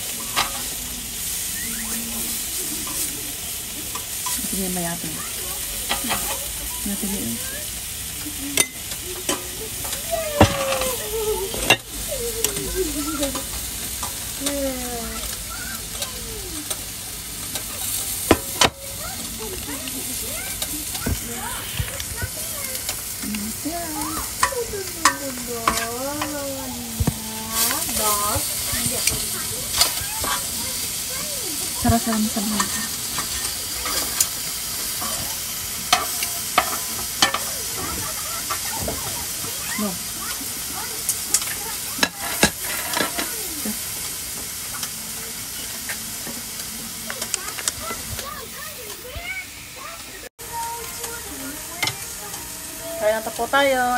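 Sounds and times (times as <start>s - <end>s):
food sizzling on grill: 0.0s - 53.9s
metal tongs clicking on grill: 0.2s - 0.8s, 8.1s - 10.0s, 35.8s - 37.6s, 41.0s - 43.3s.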